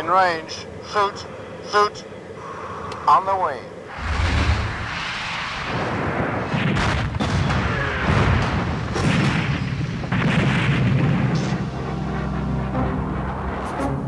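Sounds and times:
continuous rumble: 0.0s - 14.0s
heavy explosion blasts: 3.9s - 11.8s.

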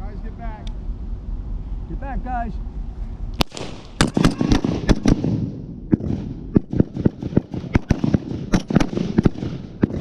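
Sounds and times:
rifle shots: 3.4s - 10.0s.

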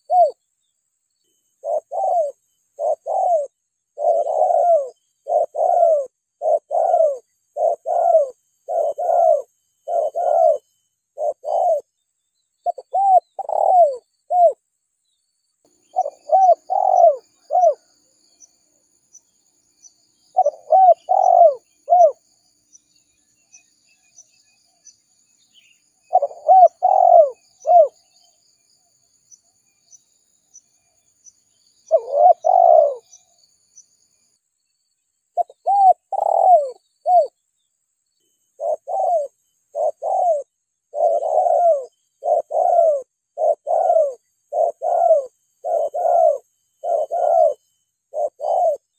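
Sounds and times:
dove cooing: 0.0s - 0.4s, 1.6s - 11.9s, 12.6s - 14.6s, 15.9s - 17.9s, 20.3s - 22.2s, 25.6s - 28.2s, 31.8s - 33.2s, 35.4s - 37.4s, 38.6s - 48.9s
faint high chirps: 0.0s - 48.9s.

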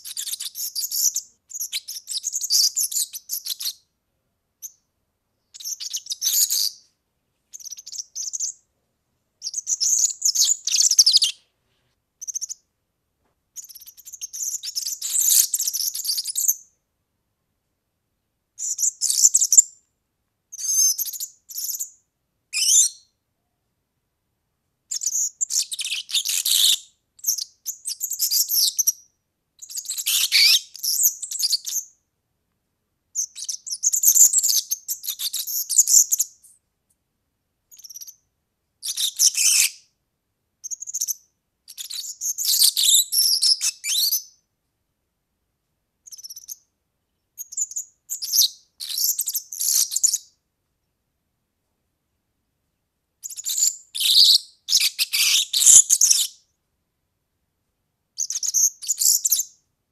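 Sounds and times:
bird high jingling song: 0.1s - 3.8s, 5.5s - 6.8s, 7.5s - 8.6s, 9.4s - 11.4s, 20.5s - 23.1s, 24.9s - 32.0s, 33.2s - 36.5s, 40.6s - 44.4s, 47.4s - 50.3s, 53.2s - 56.4s.

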